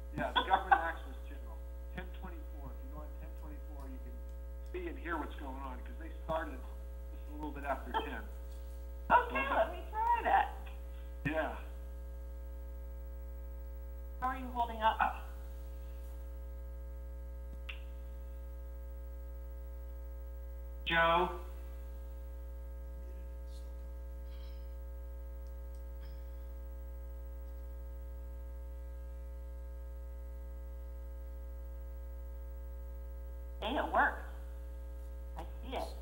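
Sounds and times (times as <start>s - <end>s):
electrical mains hum: 0.0s - 36.0s
faint clicks: 25.4s - 26.2s.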